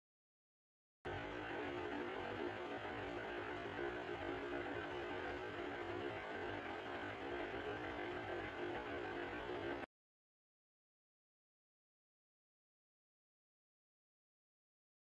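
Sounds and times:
electrical hum: 1.1 - 9.9.

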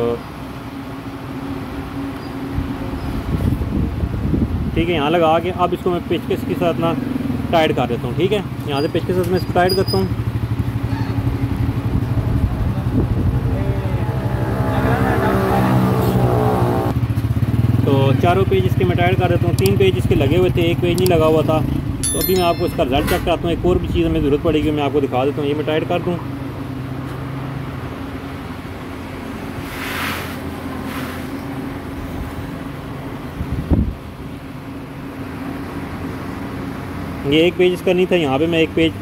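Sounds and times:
higher layered engine tone: 0.0 - 29.6.

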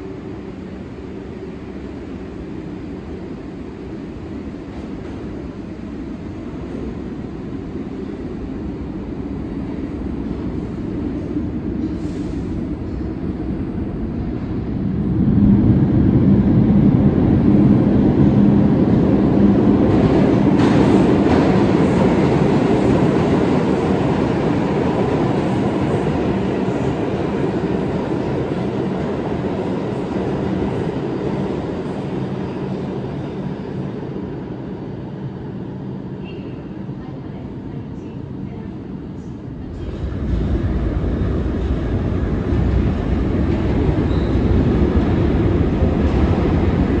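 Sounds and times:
subway train passing through: 0.0 - 47.0.

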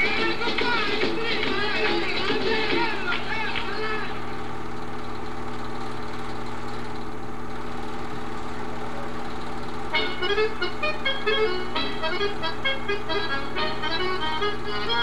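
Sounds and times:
music: 0.0 - 4.2, 9.9 - 15.0
film projector humming: 0.0 - 15.0.

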